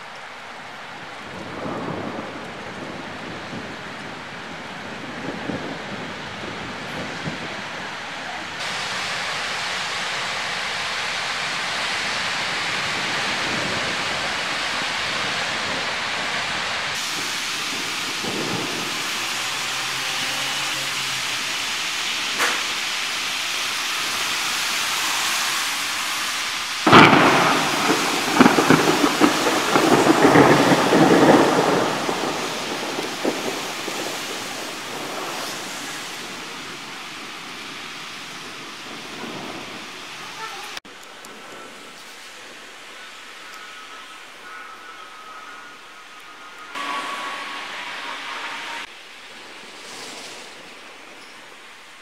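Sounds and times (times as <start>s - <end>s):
heavy rain falling on street: 0.0s - 52.0s
thunderclap rumbling: 1.2s - 23.1s, 26.8s - 41.9s.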